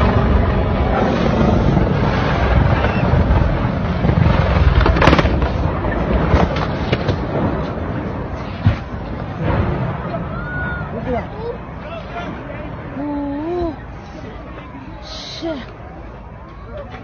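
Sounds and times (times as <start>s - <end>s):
helicopter rumbling: 0.0s - 15.3s
sharp crack: 0.8s - 10.4s.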